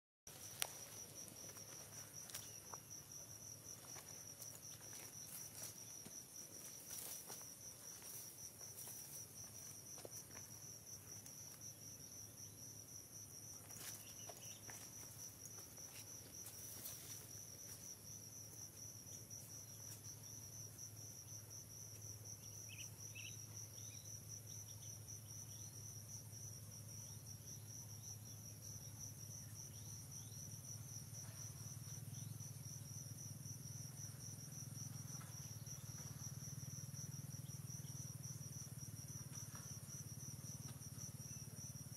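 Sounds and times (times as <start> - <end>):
insects trilling: 0.3 - 41.9.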